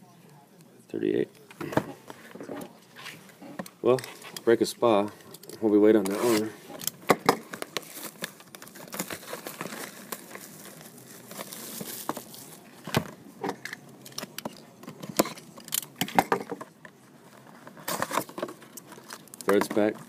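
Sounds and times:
plastic shrink-wrap crinkling: 5.2s - 13.0s, 17.1s - 20.0s.

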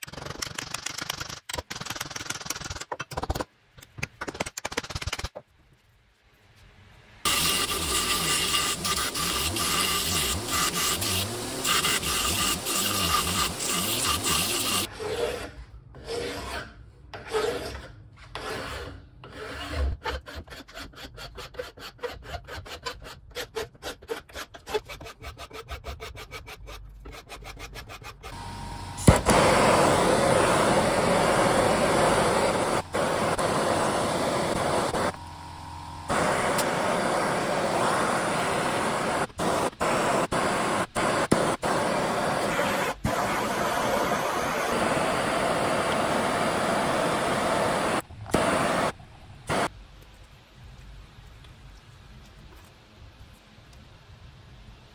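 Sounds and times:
gas torch burning: 7.2s - 14.9s, 28.4s - 49.7s
belt grinder running: 7.3s - 14.9s
file stroking wood: 17.2s - 28.4s.

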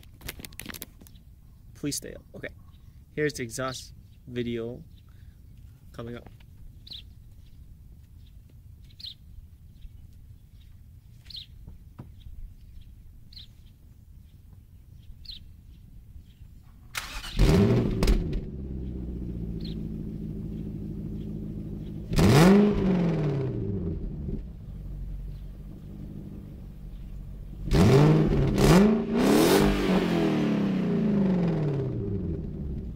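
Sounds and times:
bird chirping: 0.4s - 17.6s, 18.5s - 22.6s, 24.5s - 28.0s
car engine starting and idling: 17.0s - 32.9s
engine revving: 17.0s - 32.9s.

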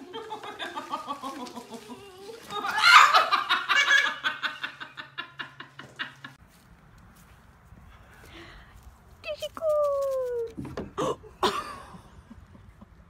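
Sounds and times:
person laughing: 0.0s - 6.4s.

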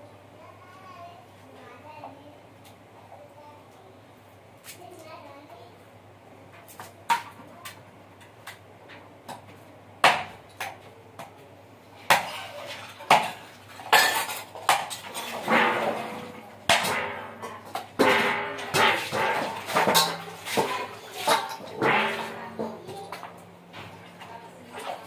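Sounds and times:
scraping on concrete: 12.1s - 23.3s.

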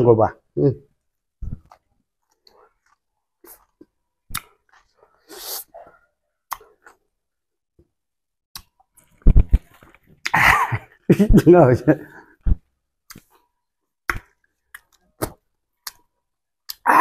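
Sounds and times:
mouth and throat sounds: 1.4s - 7.0s, 16.6s - 17.0s
man chewing: 1.5s - 7.2s
wet mouth clicks: 2.4s - 4.9s, 6.5s - 7.0s, 14.1s - 16.9s
sharp breath through nose: 5.1s - 6.0s.

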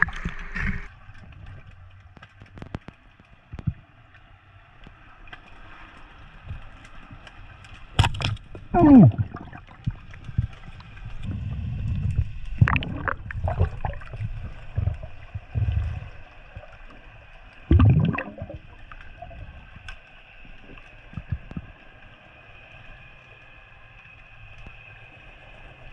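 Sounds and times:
underwater water rush: 0.0s - 4.1s, 4.7s - 25.9s
bubbling crackling surges: 8.7s - 17.0s, 17.6s - 19.8s.

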